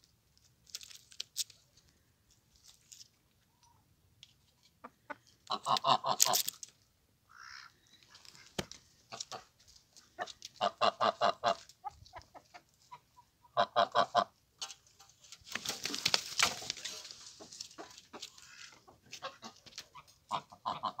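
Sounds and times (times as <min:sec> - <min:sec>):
goose honking: 0:10.6 - 0:11.6, 0:18.4 - 0:21.0.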